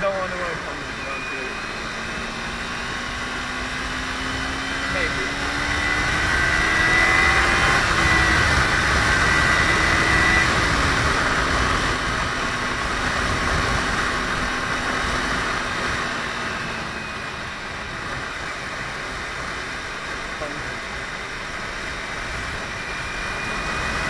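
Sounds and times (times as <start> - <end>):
motorcycle engine running: 0.0 - 24.0
wind noise on microphone: 5.3 - 20.3.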